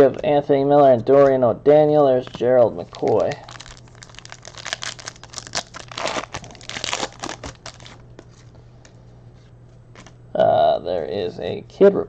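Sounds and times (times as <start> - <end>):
faint low hum: 0.0 - 12.0
trading cards rustling: 2.3 - 8.5.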